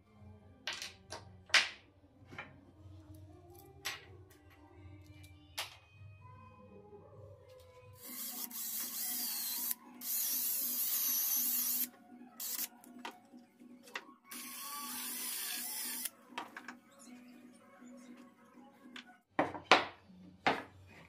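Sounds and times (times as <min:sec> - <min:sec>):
faint background music: 0:00.0 - 0:21.0
power drill boring into wood: 0:08.0 - 0:12.7, 0:14.3 - 0:16.1.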